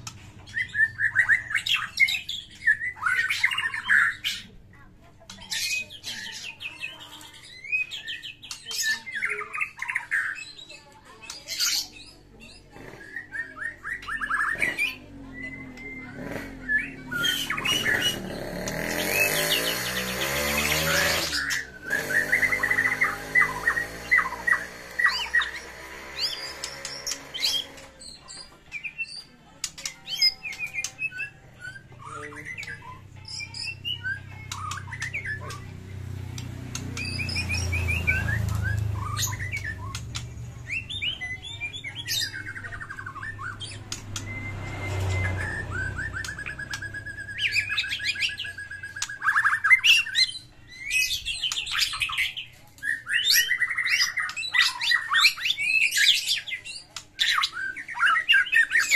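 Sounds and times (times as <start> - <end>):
songbird singing: 0.0 - 58.9
harsh noisy passage: 16.2 - 28.0.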